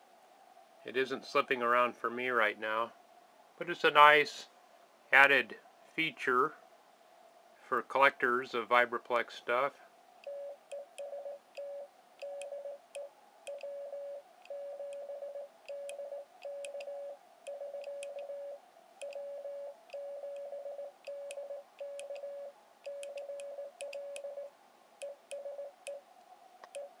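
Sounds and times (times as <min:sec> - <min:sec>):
morse code beeps: 0:10.2 - 0:26.0.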